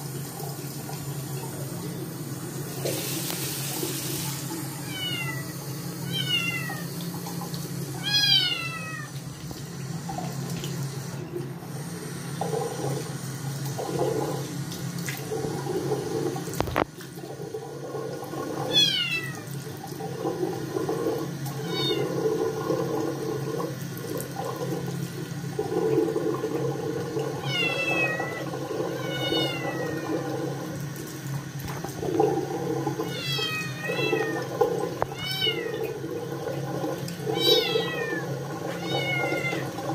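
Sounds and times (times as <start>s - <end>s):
tap running into sink: 2.7s - 4.5s, 12.4s - 17.2s, 25.6s - 39.9s
kitten meowing loudly: 4.8s - 5.5s, 8.0s - 9.1s.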